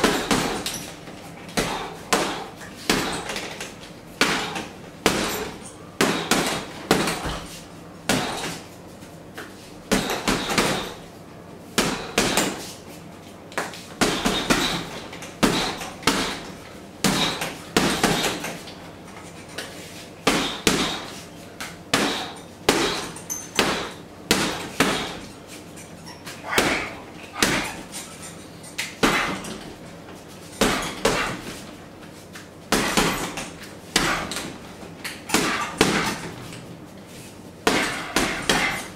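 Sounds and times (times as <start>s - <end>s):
gloves punching heavy bag: 0.0s - 8.7s, 9.9s - 11.0s, 11.8s - 12.7s, 14.0s - 18.6s, 20.2s - 21.2s, 21.9s - 25.4s, 26.3s - 28.0s, 29.0s - 29.7s, 30.6s - 31.6s, 32.7s - 36.4s, 37.6s - 38.9s.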